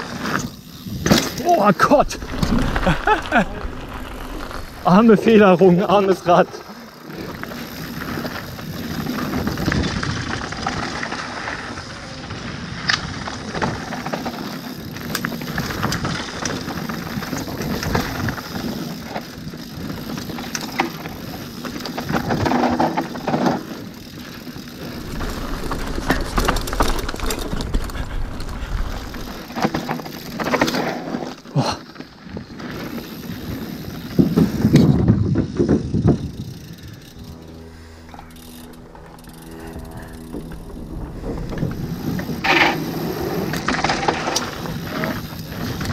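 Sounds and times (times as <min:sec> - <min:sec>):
bike rattling over bumps: 0:00.0 - 0:45.9
bike tyres rumbling over dirt: 0:00.0 - 0:45.9
tyres rolling on wooden bridge: 0:00.9 - 0:12.5, 0:13.2 - 0:37.4, 0:39.1 - 0:45.9.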